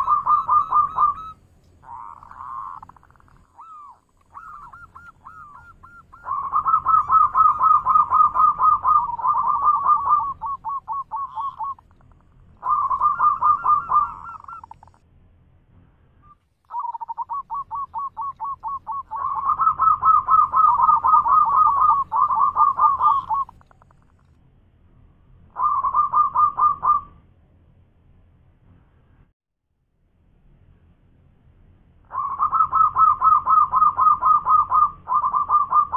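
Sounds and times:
dove rolling coos: 0.0 - 15.0, 16.7 - 24.2, 25.6 - 27.1, 32.1 - 35.9.

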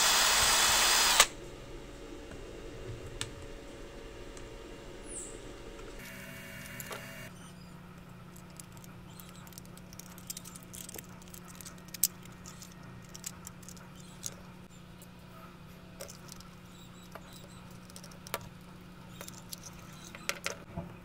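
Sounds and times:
plastic parts clicking: 8.0 - 14.5, 16.0 - 18.6, 19.2 - 20.7.

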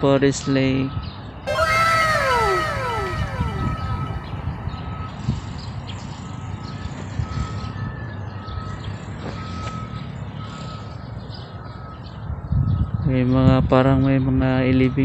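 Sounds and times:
vehicle reversing alarm beeping: 1.5 - 4.6.

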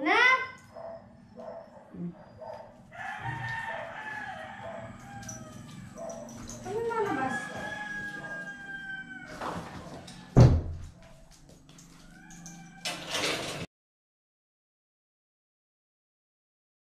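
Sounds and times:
rooster crowing: 2.8 - 10.4, 11.0 - 13.6
door banging shut: 9.3 - 11.0.

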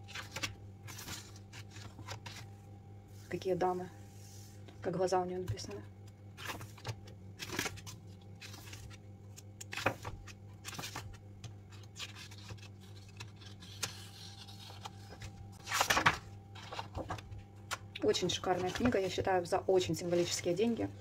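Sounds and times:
book pages turning: 0.0 - 2.6, 5.5 - 19.3
low steady hum: 0.0 - 21.0.

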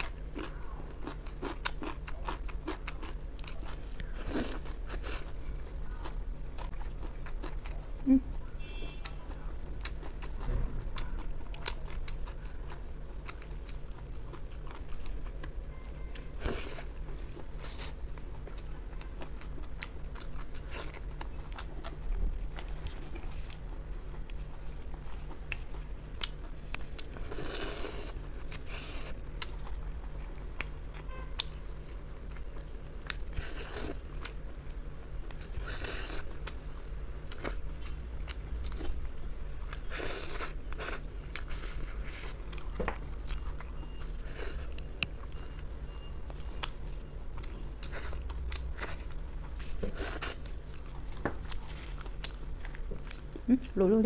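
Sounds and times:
wet chewing: 0.0 - 53.5
low steady hum: 0.0 - 54.0.

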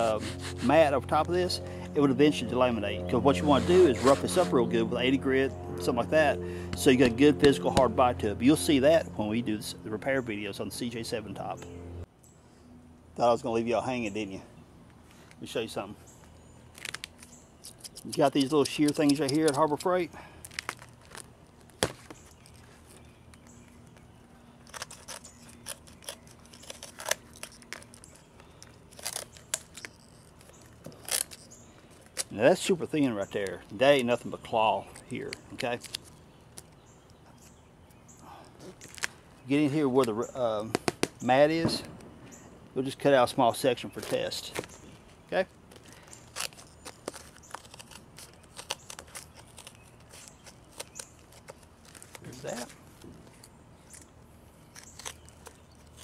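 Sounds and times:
hand shears snipping fiberglass: 0.0 - 5.0, 6.7 - 8.2, 17.6 - 19.9
shears snapping through fiberglass: 16.7 - 37.6, 39.9 - 42.1, 43.8 - 44.9, 45.7 - 56.0.

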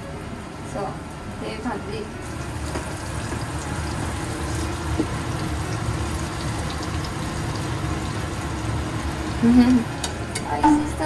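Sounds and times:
range hood fan whirring: 0.0 - 11.0
patties sizzling in frying pan: 2.2 - 11.0.

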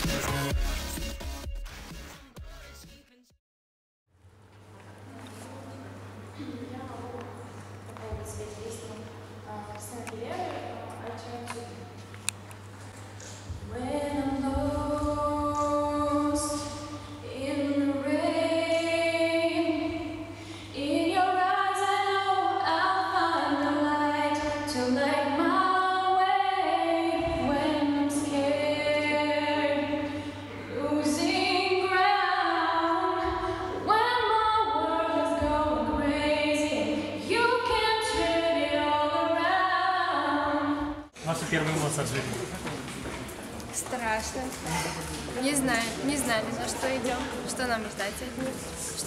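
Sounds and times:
woman singing unaccompanied: 13.6 - 20.2, 20.8 - 30.1, 30.7 - 40.8.

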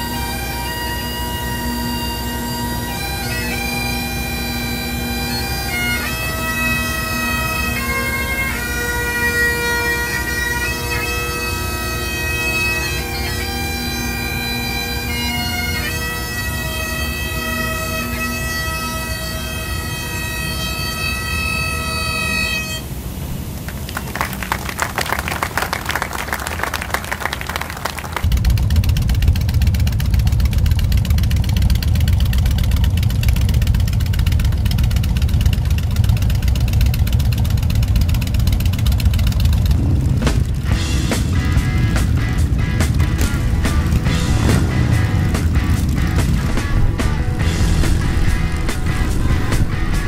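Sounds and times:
bagpipes playing a slow melody: 0.0 - 23.0, 40.8 - 50.0.

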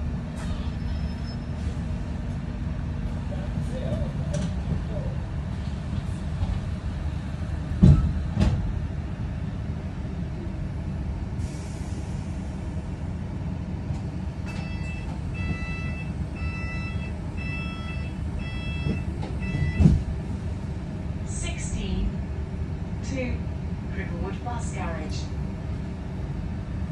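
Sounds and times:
bus engine rumble: 0.0 - 26.9.

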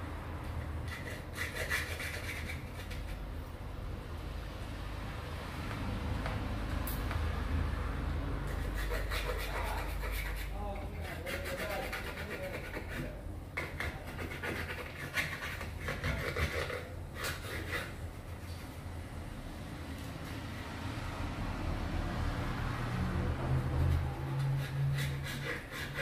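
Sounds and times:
hand tool scraping glass: 0.9 - 3.2, 8.5 - 18.6, 23.7 - 26.0.

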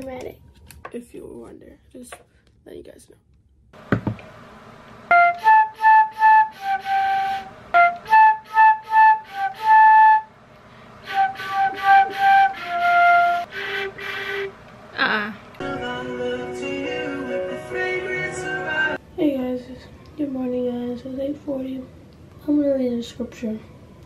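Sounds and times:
solo flute notes: 5.1 - 10.3, 11.0 - 14.5.

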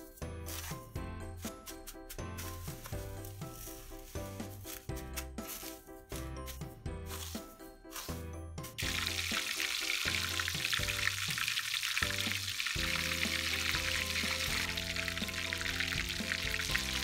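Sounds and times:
breadcrumbs rustling: 1.9 - 11.4
cutlets deep-frying in oil: 8.8 - 17.0.

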